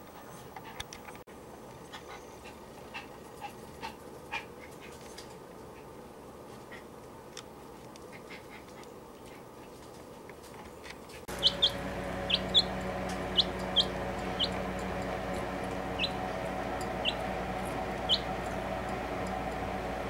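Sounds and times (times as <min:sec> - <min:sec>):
steady low hum: 0:11.2 - 0:20.0
chick peeping: 0:11.3 - 0:14.6, 0:15.9 - 0:16.2, 0:16.8 - 0:17.3, 0:18.0 - 0:18.5.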